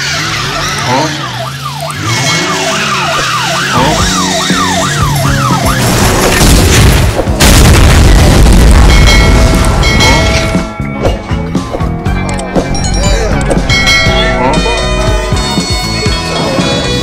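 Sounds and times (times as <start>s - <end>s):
police siren yelping: 0.0s - 6.3s, 12.8s - 16.0s
music: 3.4s - 17.0s
sudden loud hit: 5.8s - 9.4s
loud rumbling crash: 5.8s - 10.5s.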